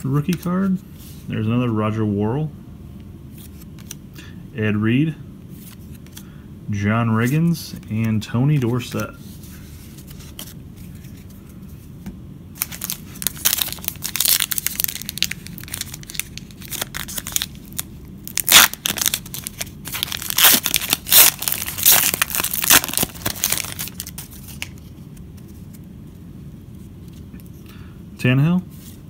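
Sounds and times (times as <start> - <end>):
wrapper tearing and crinkling: 12.6 - 24.8.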